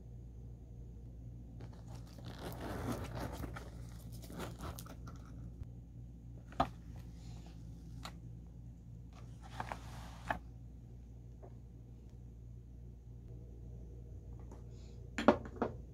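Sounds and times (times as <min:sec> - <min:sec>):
low steady hum: 0:00.0 - 0:15.9
pouch rustling: 0:01.6 - 0:05.4
metal zipper unzipping: 0:01.7 - 0:05.2.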